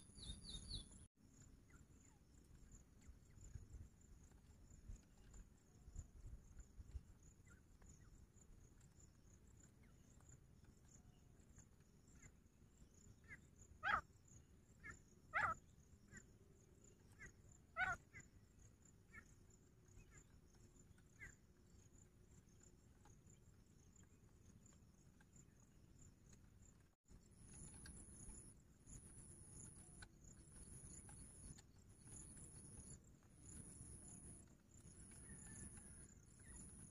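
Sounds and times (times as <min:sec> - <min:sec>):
francolin calling: 0:00.0 - 0:01.0, 0:13.2 - 0:14.0, 0:14.8 - 0:16.2, 0:17.1 - 0:18.3
faint high insect drone: 0:00.0 - 0:36.9.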